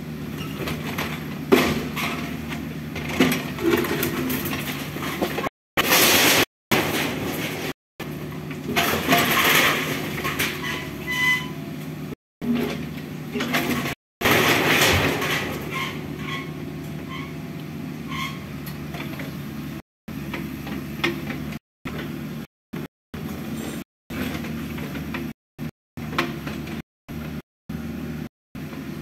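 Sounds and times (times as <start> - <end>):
excavator engine running: 0.0 - 29.0
short squeaks: 0.3 - 0.7, 10.5 - 11.6, 15.6 - 17.4, 18.0 - 19.2.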